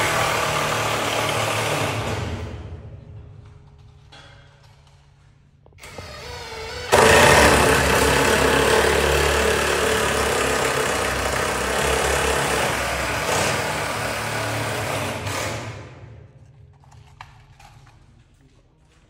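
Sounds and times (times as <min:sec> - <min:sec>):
power tool cutting steel: 0:06.8 - 0:15.7.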